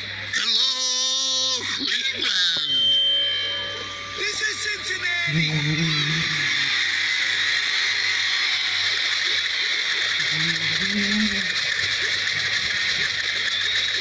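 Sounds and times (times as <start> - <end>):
audience crowd noise: 3.8 - 14.0.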